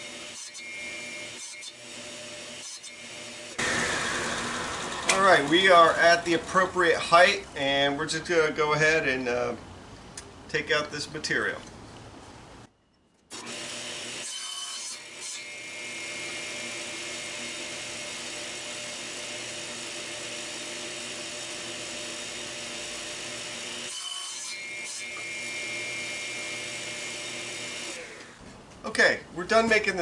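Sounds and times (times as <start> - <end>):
table saw cutting wood: 0.0 - 6.7, 13.3 - 28.4.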